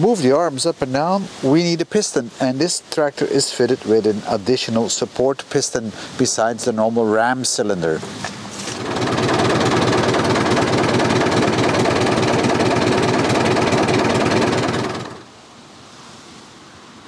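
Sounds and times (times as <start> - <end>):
tractor diesel engine running: 8.6 - 15.3.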